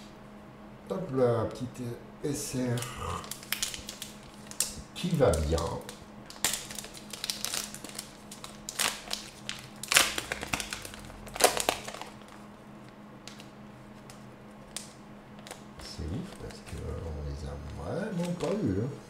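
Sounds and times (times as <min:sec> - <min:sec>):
plastic packaging crinkling: 0:02.8 - 0:12.4.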